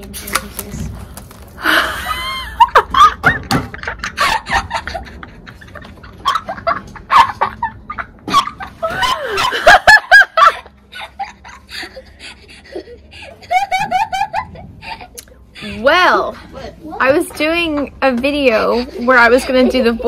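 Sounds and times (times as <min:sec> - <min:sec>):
woman laughing: 0:01.6 - 0:16.0, 0:18.7 - 0:20.0.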